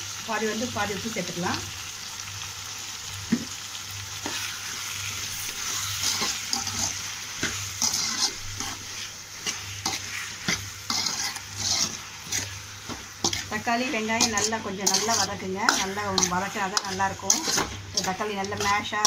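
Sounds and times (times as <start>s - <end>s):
vegetables sizzling in hot oil: 0.0s - 19.0s
metal ladle scraping a pan: 4.2s - 19.0s.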